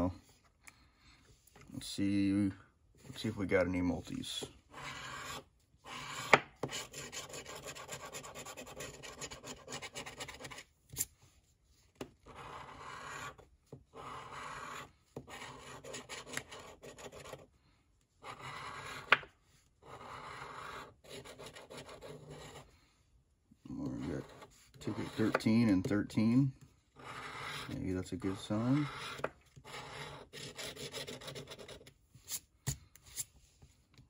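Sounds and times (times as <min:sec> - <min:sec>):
coin scratching lottery ticket: 0:04.8 - 0:10.6, 0:12.3 - 0:13.4, 0:14.0 - 0:17.4, 0:18.2 - 0:19.1, 0:19.8 - 0:22.6, 0:27.0 - 0:31.9.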